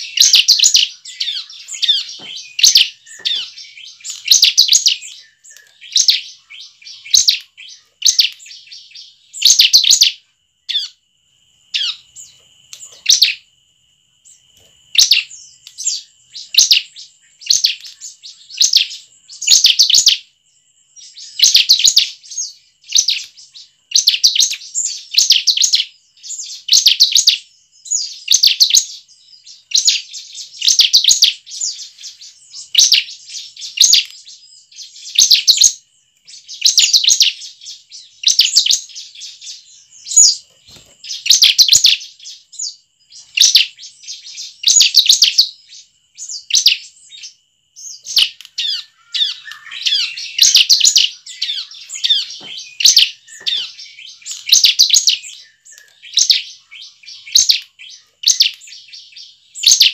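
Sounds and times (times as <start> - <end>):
bird singing chattering chirps: 0.0 - 11.0, 11.7 - 13.4, 14.2 - 59.9.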